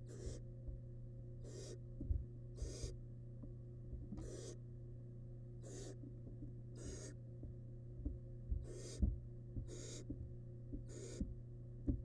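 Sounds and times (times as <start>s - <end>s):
owl chicks hissing begging calls: 0.0s - 0.4s, 1.4s - 1.8s, 2.6s - 3.0s, 4.2s - 4.6s, 5.6s - 6.0s, 6.7s - 7.2s, 8.6s - 9.1s, 9.7s - 10.1s, 10.9s - 11.2s
electrical hum: 0.0s - 12.0s.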